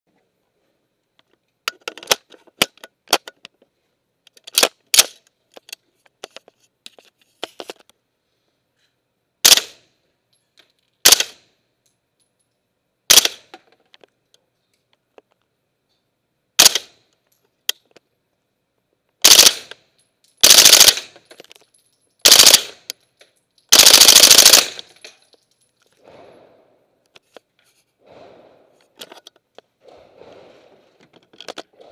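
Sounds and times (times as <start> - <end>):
automatic gunfire bursts: 16.6 - 16.9, 19.2 - 19.7, 20.4 - 21.1, 22.2 - 22.8, 23.7 - 24.8.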